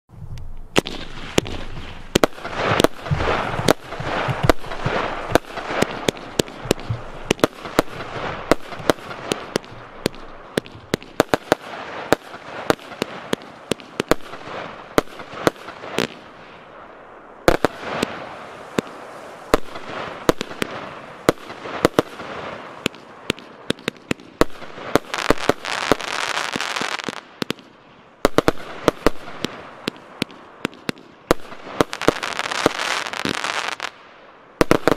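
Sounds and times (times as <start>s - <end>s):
fireworks hiss: 0.7s - 27.4s, 28.2s - 34.0s
fireworks sharp reports: 0.7s - 34.0s.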